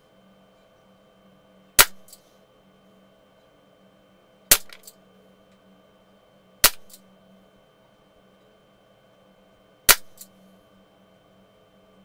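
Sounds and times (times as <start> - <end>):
pellet pistol cracks: 1.8 - 2.2, 4.5 - 4.9, 6.6 - 7.0, 9.9 - 10.2.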